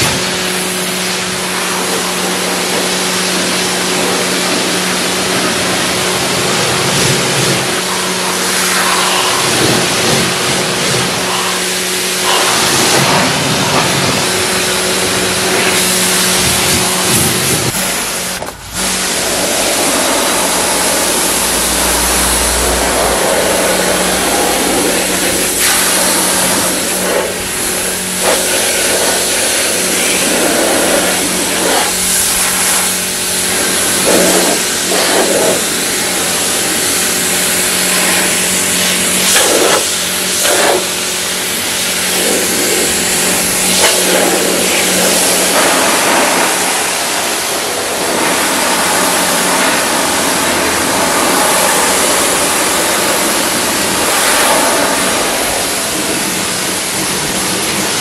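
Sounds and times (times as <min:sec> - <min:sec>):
pressure washer motor humming: 0:00.0 - 0:58.0
water jet spattering on car: 0:36.7 - 0:47.4.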